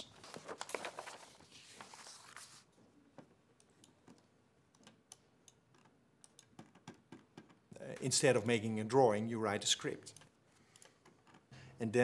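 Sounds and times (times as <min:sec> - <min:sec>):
keyboard and mouse clicks: 0:03.6 - 0:07.6.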